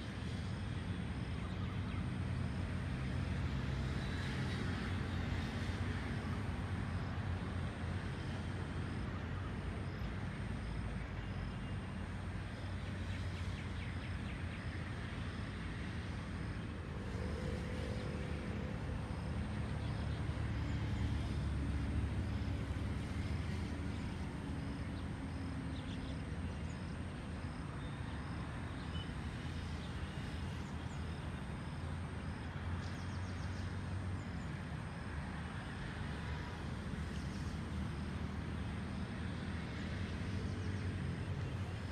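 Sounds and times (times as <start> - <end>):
low rumble of road traffic: 0.0 - 41.9.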